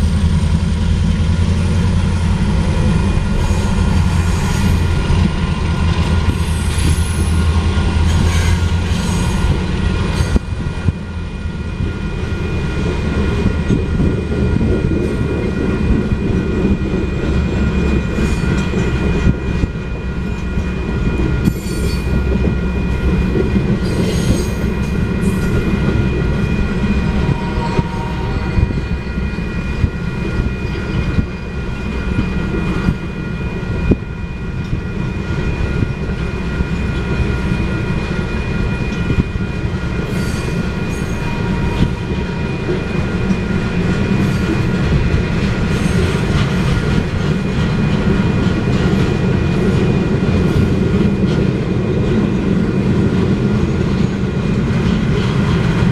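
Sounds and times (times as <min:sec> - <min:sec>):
crossing warning bell ringing: 0:00.0 - 0:55.9
steel wheels rumbling: 0:00.0 - 0:55.9
clacks over rail joints: 0:42.7 - 0:55.9.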